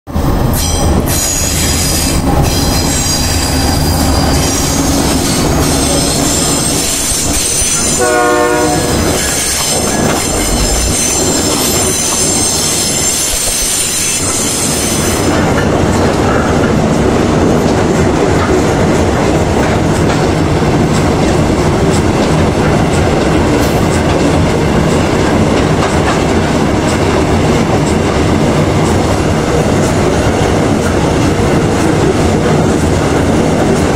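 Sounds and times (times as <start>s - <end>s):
locomotive horn blast: 7.8s - 9.4s.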